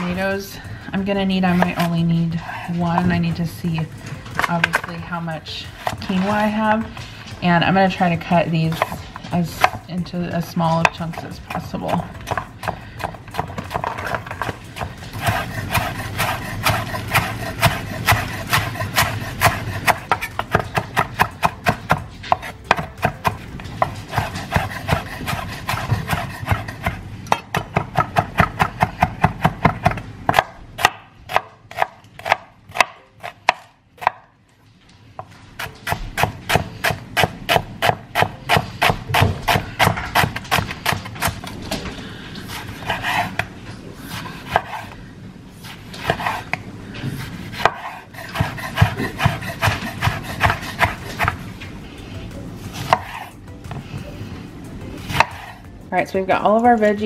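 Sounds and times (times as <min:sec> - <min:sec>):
knife chopping on wooden board: 0:10.8 - 0:34.2, 0:35.6 - 0:41.5, 0:42.5 - 0:43.5, 0:44.1 - 0:45.0, 0:45.6 - 0:46.6, 0:47.2 - 0:51.4, 0:52.8 - 0:53.3, 0:55.1 - 0:55.6.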